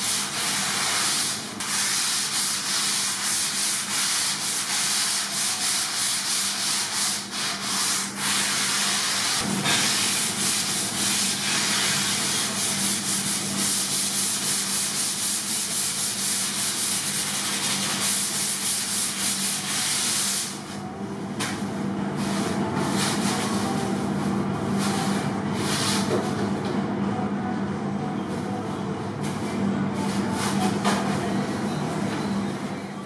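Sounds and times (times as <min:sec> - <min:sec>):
sanding foam by hand: 0:00.0 - 0:20.6
steady low hum: 0:05.4 - 0:33.0.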